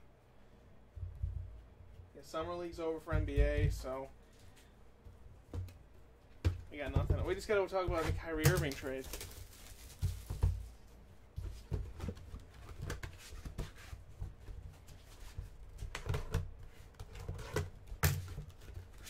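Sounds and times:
cardboard boxes knocking and rustling: 0:05.5 - 0:10.8, 0:11.4 - 0:19.0.

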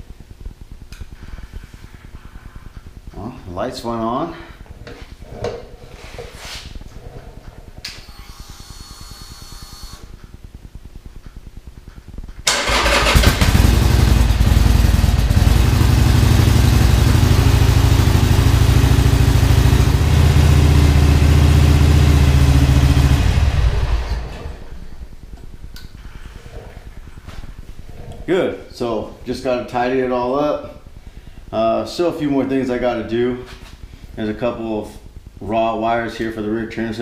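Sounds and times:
faint starter whine: 0:06.6 - 0:29.8
motorcycle engine idling: 0:12.5 - 0:27.7.

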